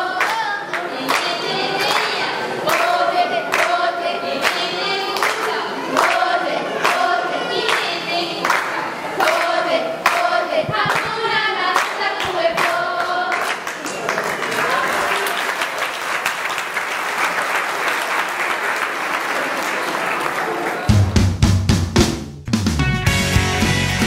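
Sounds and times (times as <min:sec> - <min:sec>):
children's choir singing: 0:00.0 - 0:15.2
rhythmic clapping: 0:00.0 - 0:21.3.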